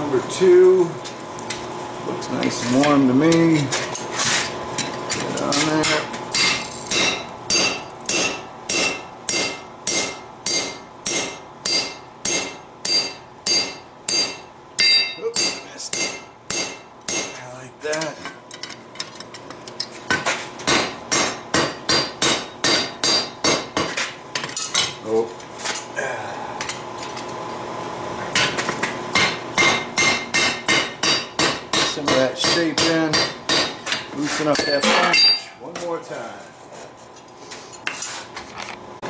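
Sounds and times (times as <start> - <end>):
hammer striking metal on anvil: 5.7 - 17.4, 20.6 - 24.0, 28.4 - 35.6.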